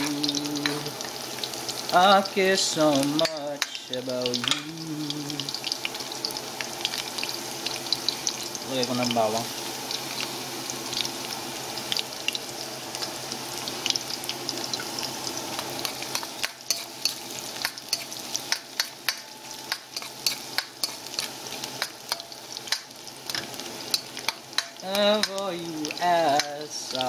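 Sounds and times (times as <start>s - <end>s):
garlic sizzling in hot oil: 0.0s - 27.0s
spoon scraping metal pan: 15.8s - 22.3s.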